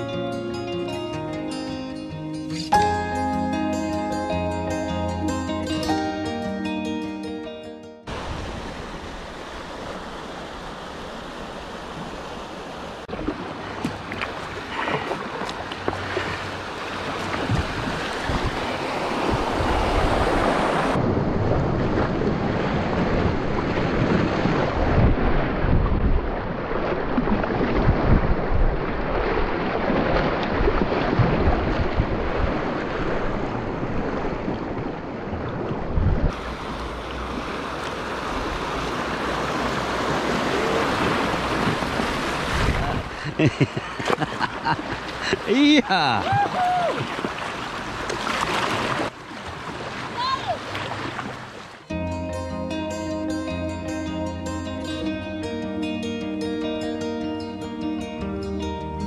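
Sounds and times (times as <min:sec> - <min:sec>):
river water rushing: 0:08.1 - 0:21.1, 0:26.6 - 0:52.0
wind buffeting microphone: 0:17.0 - 0:43.2.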